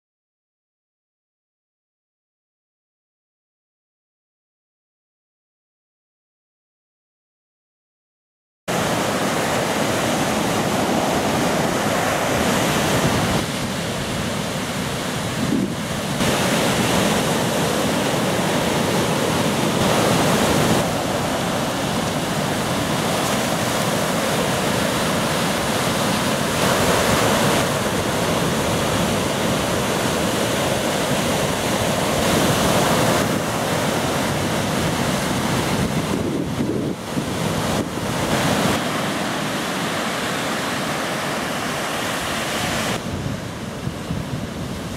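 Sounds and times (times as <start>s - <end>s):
ocean waves breaking: 8.7s - 44.9s
wind buffeting microphone: 9.6s - 39.2s, 42.6s - 44.9s.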